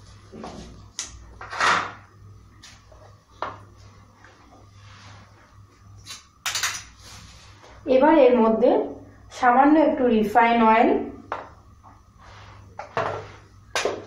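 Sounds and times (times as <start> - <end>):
low steady hum: 0.0 - 14.0
scrape on counter: 12.2 - 13.5.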